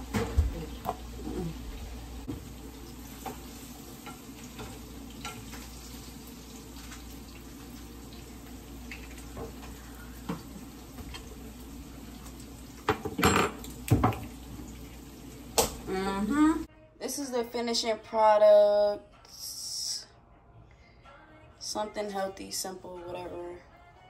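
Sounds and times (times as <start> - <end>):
fish sizzling in a frying pan: 1.0 - 16.4.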